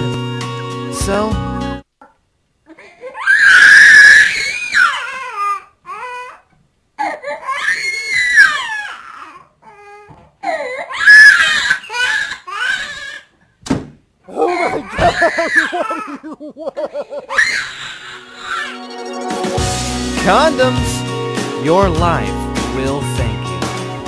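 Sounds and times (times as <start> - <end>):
baby crying: 2.7 - 13.3, 14.3 - 16.3, 17.2 - 18.9.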